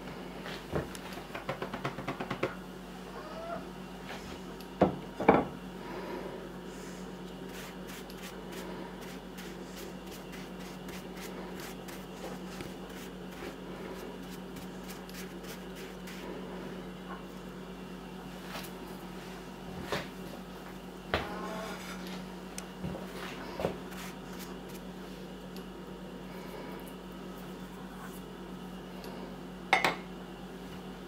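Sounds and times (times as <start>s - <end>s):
steady low hum: 0.0s - 31.0s
bristle brush rubbing mushroom cap: 7.4s - 16.4s, 23.8s - 24.9s.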